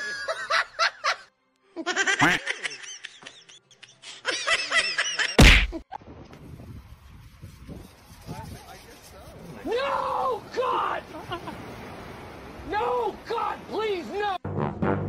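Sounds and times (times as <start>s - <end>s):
loud thump: 5.4s - 5.8s.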